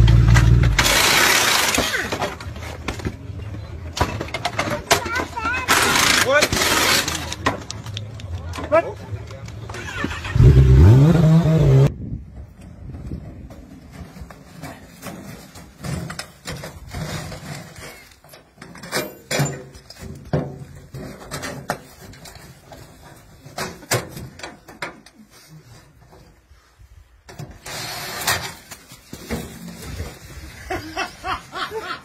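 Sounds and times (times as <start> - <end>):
metallic clanks of wheelbarrow: 0.0 - 7.9, 12.4 - 26.4, 27.3 - 30.4.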